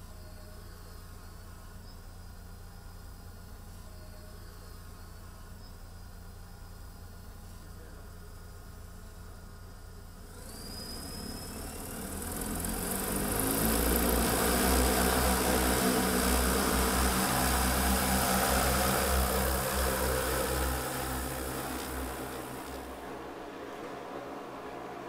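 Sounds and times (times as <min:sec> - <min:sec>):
drone rotors humming: 0:00.0 - 0:25.0
rising whine: 0:10.2 - 0:25.0.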